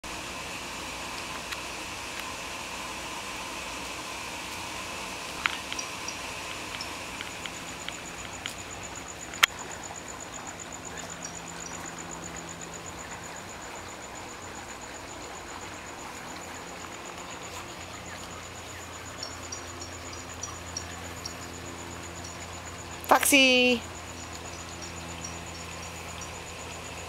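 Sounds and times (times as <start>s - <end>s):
outdoor background hiss: 0.0s - 27.0s
faint high bird chirps: 17.9s - 26.5s.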